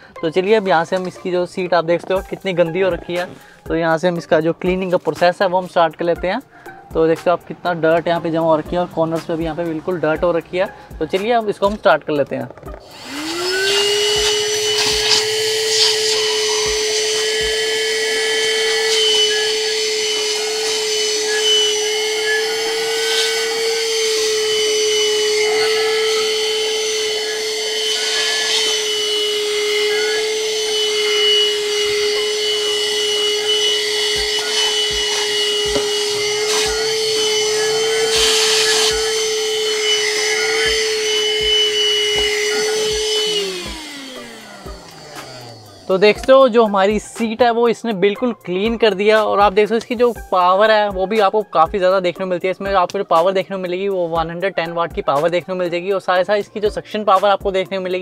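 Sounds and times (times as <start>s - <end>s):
car vacuum cleaner whining: 0.0s - 47.6s.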